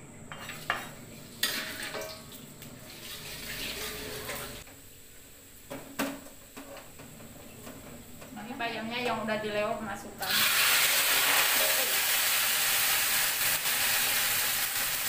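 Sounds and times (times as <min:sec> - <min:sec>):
food sizzling in pan: 0:00.3 - 0:08.6, 0:10.2 - 0:15.0
spatula scraping cutting board: 0:02.9 - 0:04.6.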